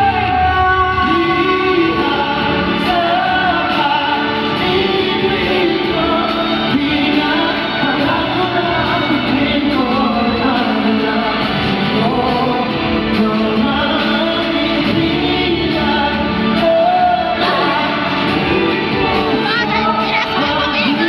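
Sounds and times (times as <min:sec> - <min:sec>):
instrumental backing: 0:00.0 - 0:21.0
male vocal group singing: 0:00.0 - 0:21.0.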